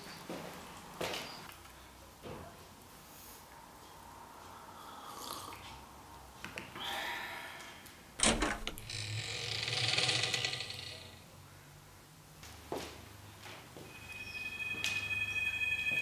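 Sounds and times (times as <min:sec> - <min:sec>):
rasping grating noise: 0:08.8 - 0:11.2
faint scuffs and rustles: 0:12.4 - 0:13.9.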